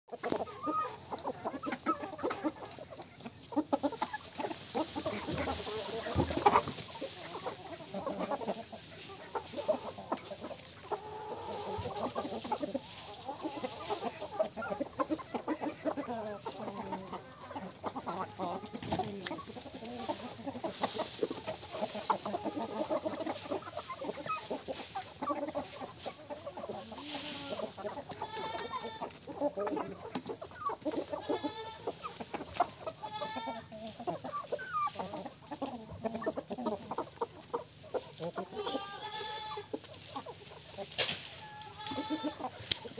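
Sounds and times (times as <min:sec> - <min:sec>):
chickens clucking: 0:00.1 - 0:42.9
long drawn-out chicken calls: 0:00.1 - 0:42.9.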